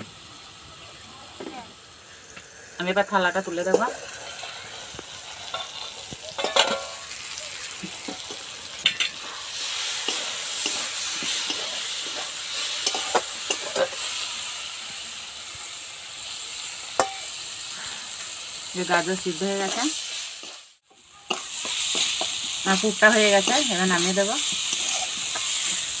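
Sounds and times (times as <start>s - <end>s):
vegetables sizzling in a pan: 0.0s - 26.0s
spatula scraping a pan: 3.6s - 14.2s, 23.9s - 26.0s
metal lid clinking: 5.5s - 7.1s, 8.0s - 9.2s.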